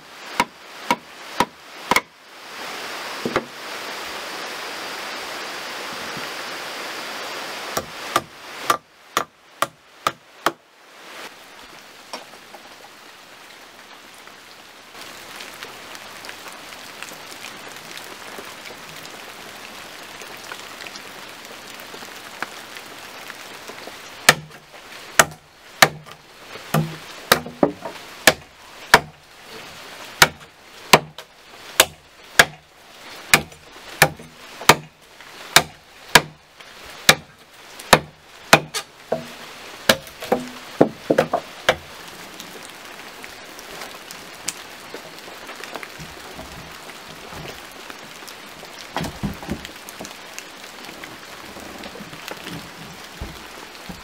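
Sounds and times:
background hiss: 0.0s - 54.0s
blade chopping into wood: 0.4s - 2.1s, 25.2s - 26.1s, 26.7s - 29.1s, 31.8s - 32.6s, 33.3s - 34.9s, 35.6s - 36.4s, 37.9s - 39.3s.

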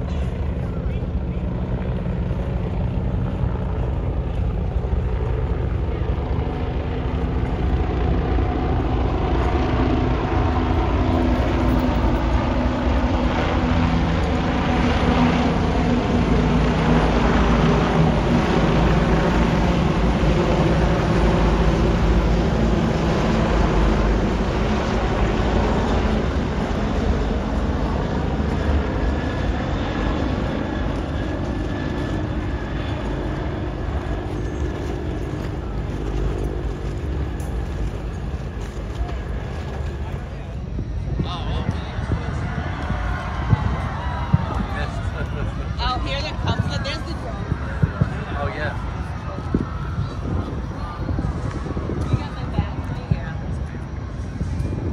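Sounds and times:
low rumble of engines: 0.0s - 54.9s.

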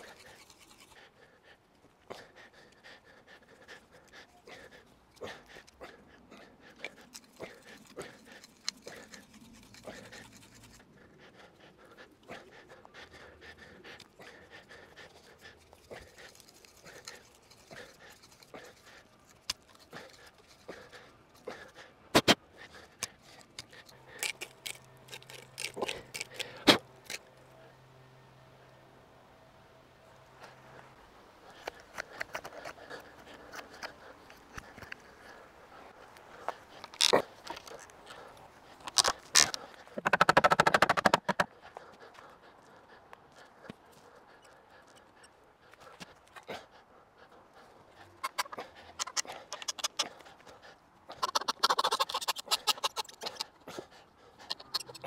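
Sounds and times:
fast wooden rattle: 40.0s - 41.5s.

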